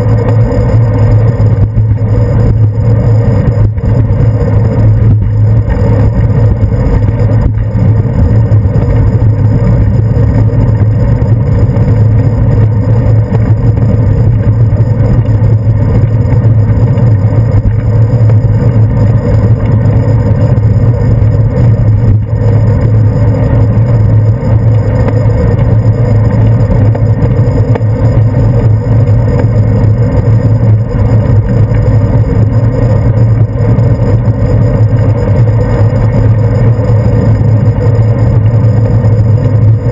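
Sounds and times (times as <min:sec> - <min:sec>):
motor traffic: 0:00.0 - 0:39.9
wind and road noise rumble: 0:00.0 - 0:39.9.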